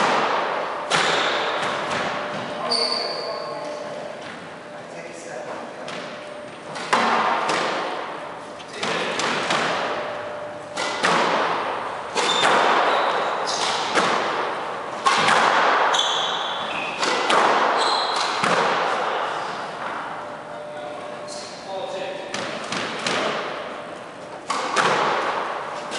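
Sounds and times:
squash ball hitting rackets and walls: 0.0s - 2.7s, 5.8s - 20.2s, 22.3s - 23.7s, 24.3s - 25.9s
shoes squeaking on wooden floor: 17.8s - 18.2s.

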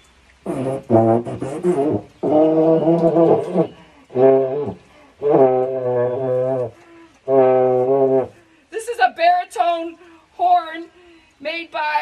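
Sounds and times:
baritone horn low notes: 0.4s - 8.5s.

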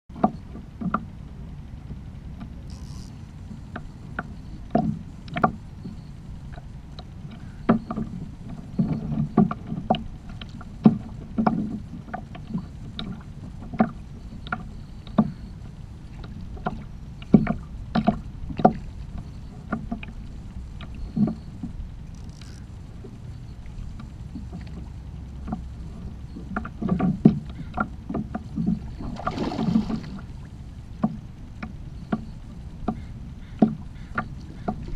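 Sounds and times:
waves knocking on kayak hull: 3.5s - 21.8s, 23.8s - 34.9s
low rumble: 10.0s - 34.9s.

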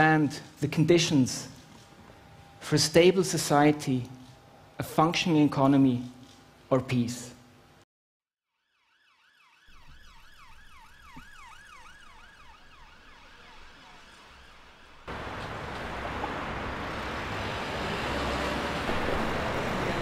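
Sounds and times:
distant emergency vehicle siren: 8.6s - 20.0s
city street noise: 11.1s - 20.0s.

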